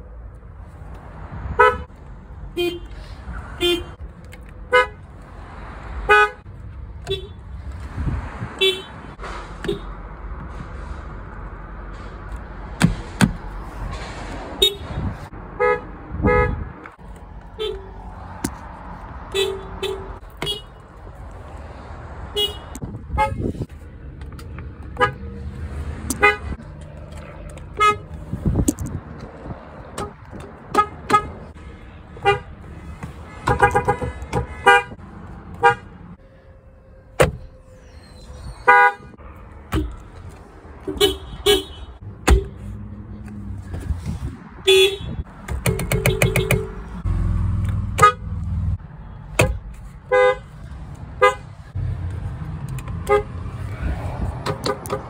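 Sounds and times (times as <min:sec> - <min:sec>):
car horns tooting: 0:01.5 - 0:01.9, 0:02.5 - 0:04.0, 0:04.7 - 0:05.1, 0:06.0 - 0:07.5, 0:08.5 - 0:10.0, 0:14.6 - 0:16.8, 0:17.6 - 0:18.0, 0:19.2 - 0:20.8, 0:22.3 - 0:23.6, 0:24.9 - 0:25.4, 0:26.1 - 0:26.6, 0:27.7 - 0:28.1, 0:29.9 - 0:40.1, 0:40.8 - 0:42.8, 0:44.6 - 0:47.0, 0:47.9 - 0:48.4, 0:49.0 - 0:50.6, 0:51.2 - 0:51.5, 0:53.0 - 0:53.4, 0:54.4 - 0:55.0.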